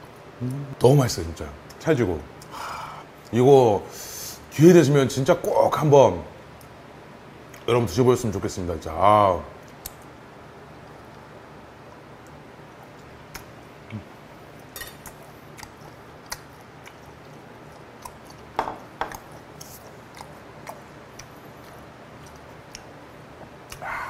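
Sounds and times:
person chewing: 12.8 - 24.0
ceramic dish knocking on wooden table: 18.6 - 19.1.

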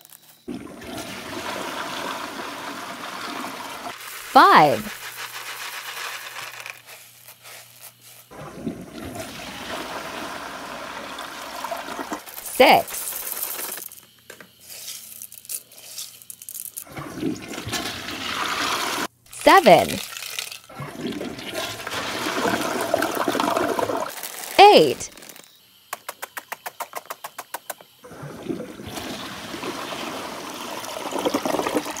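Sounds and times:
toilet flushing: 0.5 - 4.3, 8.3 - 12.4, 16.9 - 19.1, 20.7 - 24.1, 28.0 - 32.0.

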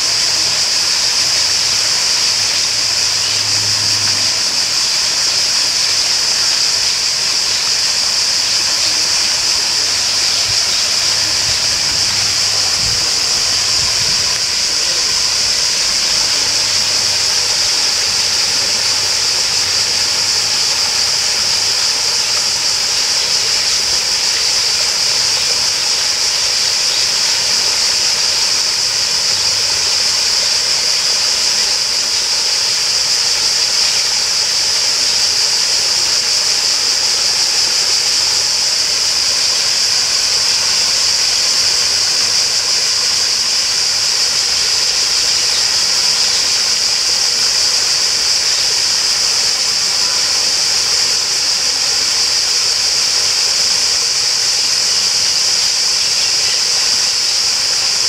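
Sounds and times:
flowing water rushing: 0.0 - 58.0
high-pitched hiss: 0.0 - 58.0.

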